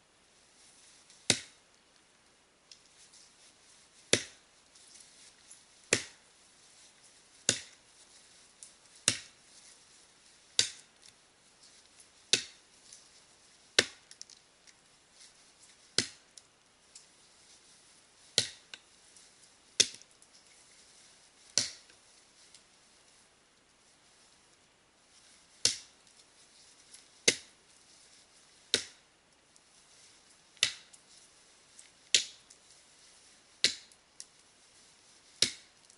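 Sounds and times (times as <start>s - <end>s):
axe chopping tree trunk: 1.3s - 1.6s, 4.1s - 4.4s, 5.9s - 6.2s, 7.5s - 7.8s, 9.0s - 9.4s, 10.6s - 10.8s, 12.3s - 12.6s, 13.8s - 14.0s, 16.0s - 16.2s, 18.4s - 18.6s, 21.6s - 21.8s, 27.3s - 27.5s, 28.7s - 29.0s, 30.6s - 30.8s, 33.6s - 33.9s, 35.4s - 35.7s.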